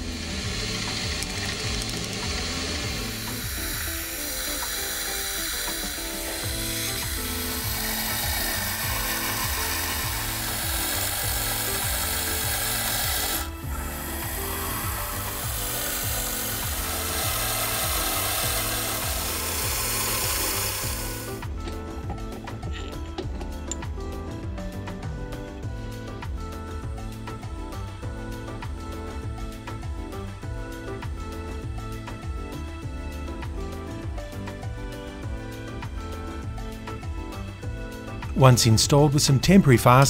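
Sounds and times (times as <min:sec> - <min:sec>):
drill cutting metal: 0:00.0 - 0:25.4
music with pulsing bass: 0:00.0 - 0:40.0.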